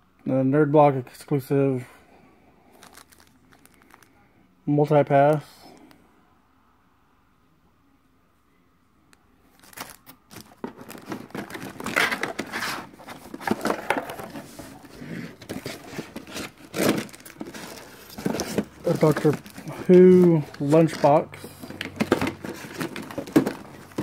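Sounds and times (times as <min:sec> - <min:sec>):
plastic packaging crinkling: 0:02.8 - 0:04.1, 0:09.5 - 0:24.0.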